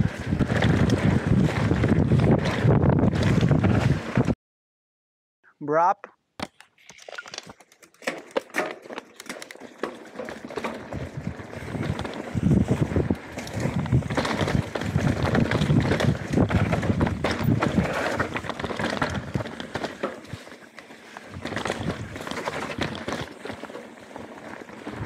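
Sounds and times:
bike tyre noise and rattling: 0.0 - 4.4, 6.4 - 25.0
bike clicks and knocks: 6.4 - 25.0.

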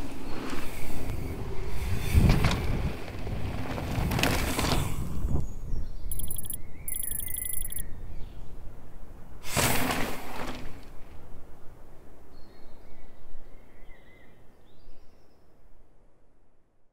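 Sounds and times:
bird chirps: 6.1 - 7.8.

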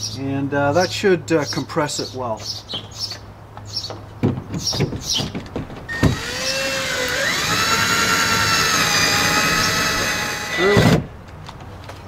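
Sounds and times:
cordless drill whining: 5.9 - 11.0.

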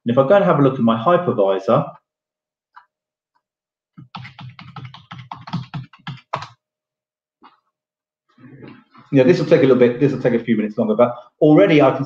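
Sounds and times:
keyboard typing: 4.0 - 6.6.

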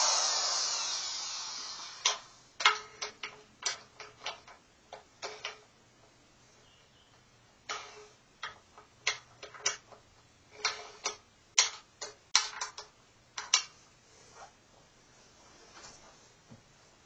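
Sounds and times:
cordless drill clicks and whirs: 0.0 - 2.3.

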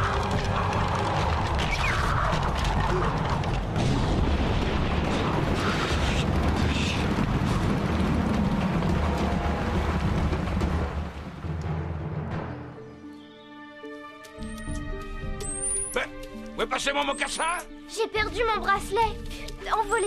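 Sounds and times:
rumbling thunder: 0.0 - 12.4.

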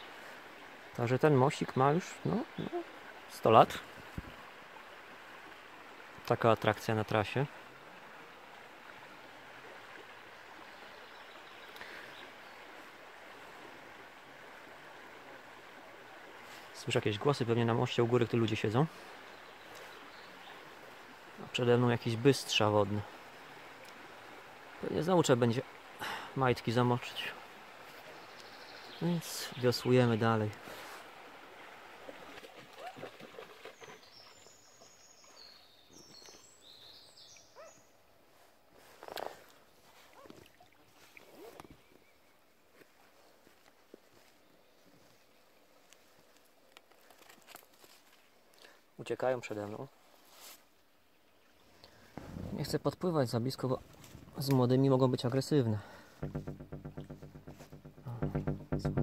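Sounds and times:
songbird singing: 0.9 - 3.8, 10.1 - 13.0, 17.0 - 24.1, 24.8 - 30.6, 32.3 - 38.1, 39.6 - 42.7, 56.2 - 59.0
river flowing over riffle: 53.6 - 59.0
water dripping plinks: 56.2 - 59.0.

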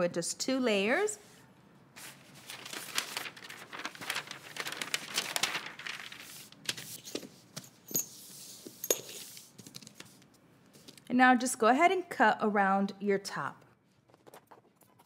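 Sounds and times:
paper rustling and crinkling: 2.0 - 10.2.

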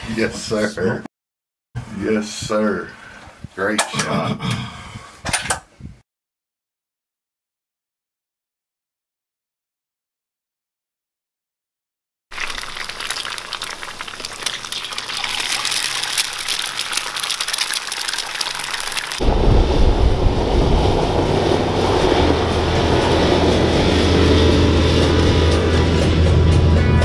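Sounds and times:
eggs sizzling on griddle: 12.3 - 19.2
vehicle engine driving off: 19.2 - 27.0.

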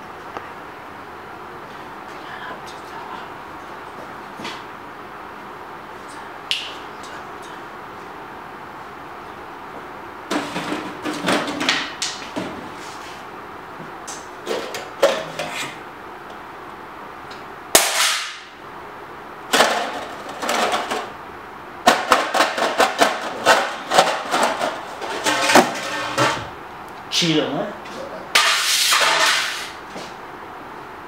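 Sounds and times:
metal tin rattling: 22.2 - 26.5.

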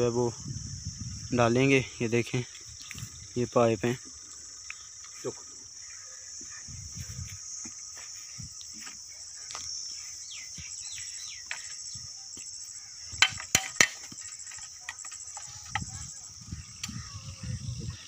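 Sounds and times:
crickets chirring: 0.0 - 18.0
descending bird calls: 9.2 - 18.0
sharp metal knocks: 13.1 - 15.9.

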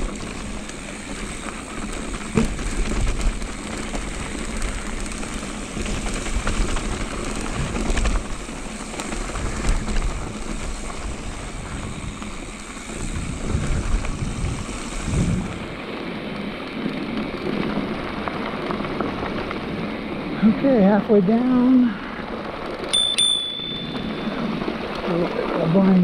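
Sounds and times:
bike knocks and rattles: 0.0 - 14.5
wind rushing over microphone: 0.0 - 16.2
tyres rolling on dirt: 0.0 - 26.0.

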